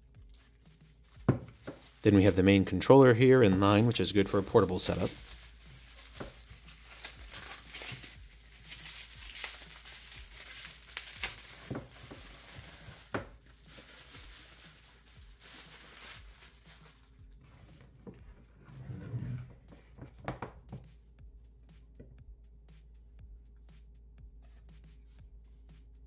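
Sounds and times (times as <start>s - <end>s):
bubble wrap crinkling: 0.0s - 18.2s.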